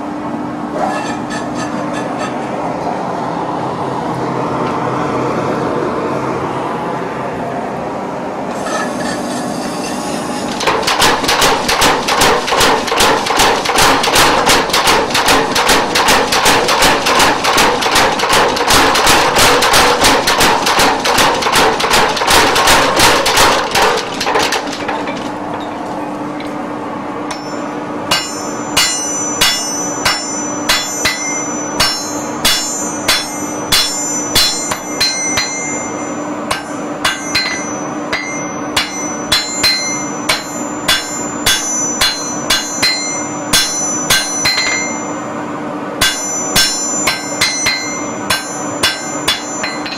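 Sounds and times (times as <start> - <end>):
steady hum: 0.0 - 49.9
power hammer pounding iron: 10.4 - 26.5, 27.2 - 45.2, 46.0 - 49.9
hand hammer ringing on anvil: 27.3 - 45.2, 46.0 - 49.9.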